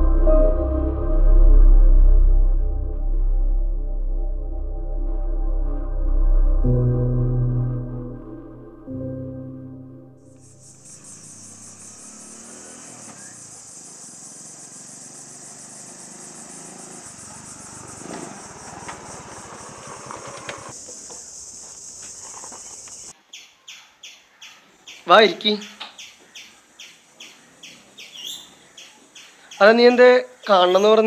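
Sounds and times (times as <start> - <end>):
cicadas or crickets droning: 10.2 - 31.0
motorcycle engine running: 10.6 - 20.8.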